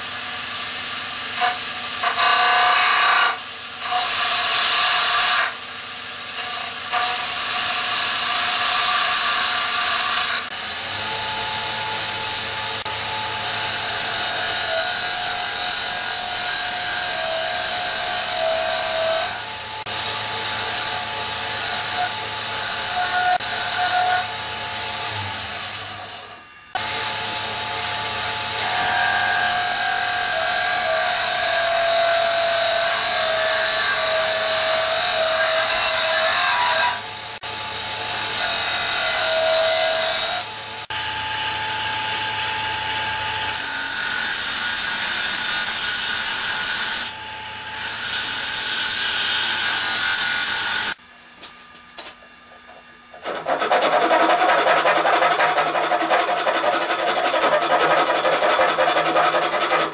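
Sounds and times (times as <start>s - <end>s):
turning tool cutting wood: 1.3s - 5.6s, 53.1s - 59.9s.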